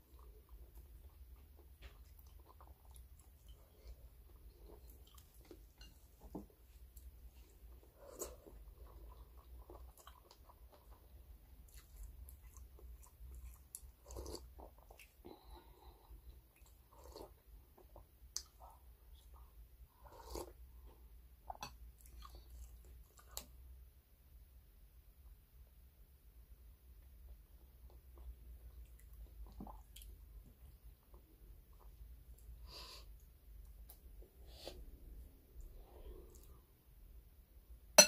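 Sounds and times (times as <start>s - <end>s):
chewing and mouth noises: 0.0s - 6.0s, 6.9s - 15.6s, 21.5s - 23.5s.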